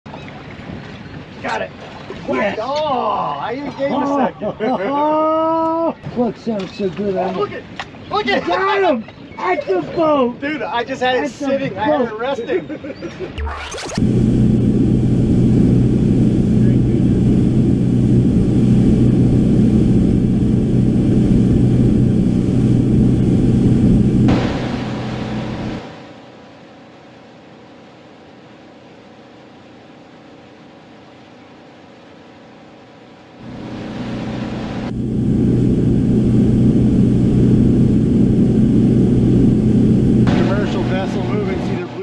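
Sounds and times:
wind: 0.1s - 42.0s
boat engine droning: 13.4s - 42.0s
rushing wind: 14.0s - 26.0s, 33.4s - 42.0s.

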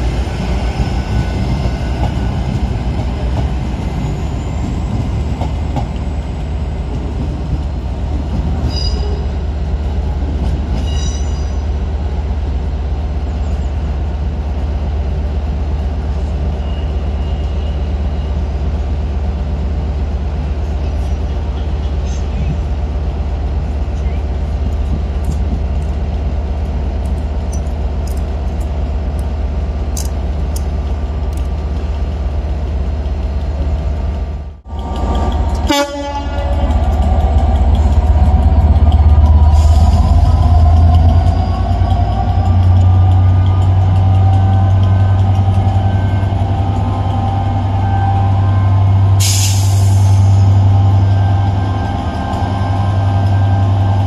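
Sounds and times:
train engine drone: 0.0s - 54.0s.

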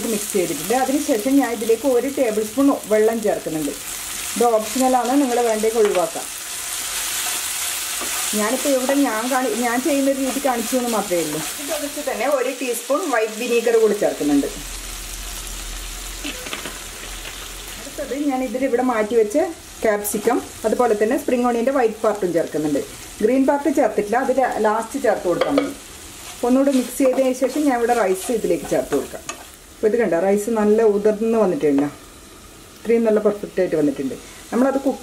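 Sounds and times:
food sizzling in a wok: 0.0s - 35.0s
wooden spatula stirring in pan: 5.3s - 12.0s, 25.4s - 29.6s.

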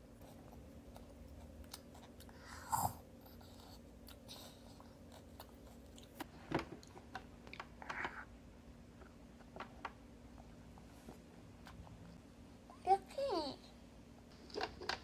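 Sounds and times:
soft chewing: 0.0s - 8.3s, 10.3s - 12.2s
faint steady hum: 0.0s - 15.0s.

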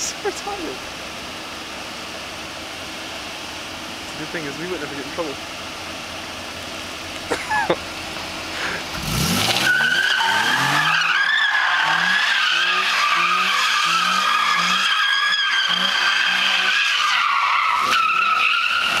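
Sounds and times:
car engine revving: 0.4s - 19.0s
tyres squealing: 9.4s - 19.0s.

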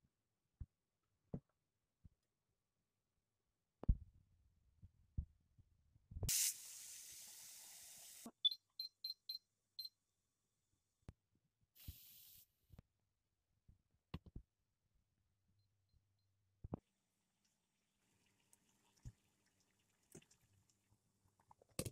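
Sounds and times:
hiss: 6.3s - 8.3s, 11.8s - 12.5s.

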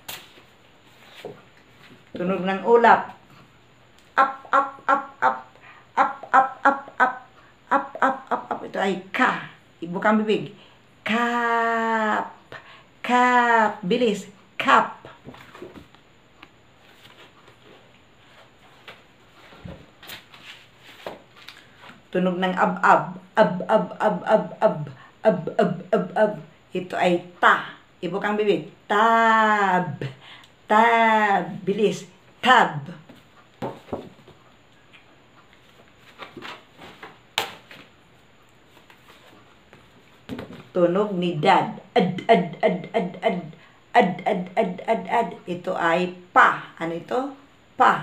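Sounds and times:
paper flashcards rustling: 16.8s - 22.0s, 35.6s - 38.0s.

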